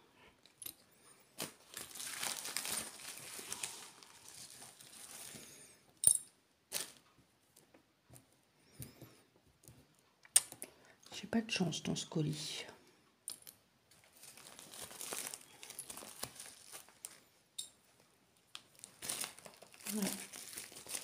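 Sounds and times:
plastic bag crinkling: 0:01.3 - 0:05.6, 0:13.9 - 0:17.3, 0:18.5 - 0:21.0.

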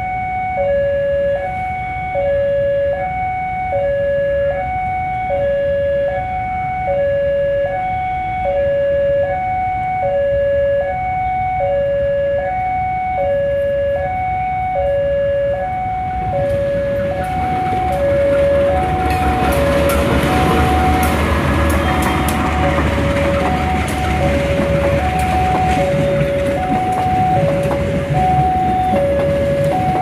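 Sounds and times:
level crossing two-tone alarm: 0:00.0 - 0:30.0
train rumble: 0:13.5 - 0:30.0
wheels clattering over rails: 0:16.2 - 0:30.0.

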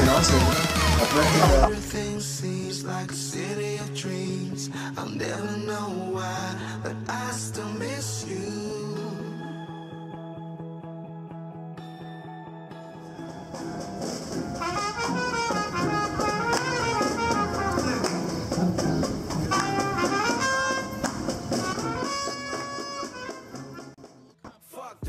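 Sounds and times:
brass band playing jazz: 0:14.6 - 0:24.0.

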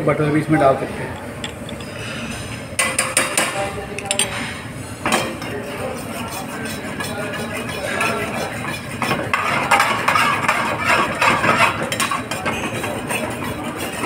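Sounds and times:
steel ladle scraping steel pan: 0:05.4 - 0:14.0.

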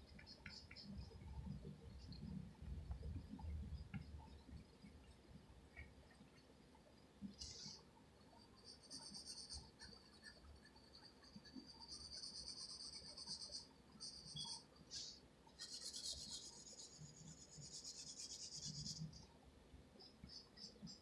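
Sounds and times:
pencil scratching on paper: 0:08.6 - 0:19.2.

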